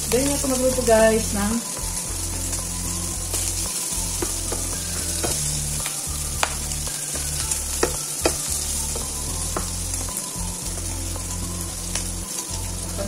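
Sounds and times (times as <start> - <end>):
food sizzling in a frying pan: 0.0 - 13.0
spatula tapping a pan: 3.3 - 11.2.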